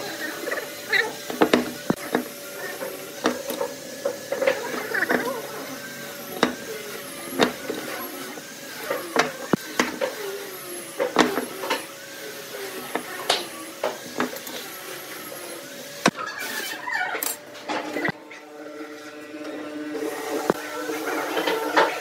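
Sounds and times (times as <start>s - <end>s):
tools knocking on wood blocks: 1.3s - 2.3s, 6.4s - 6.7s.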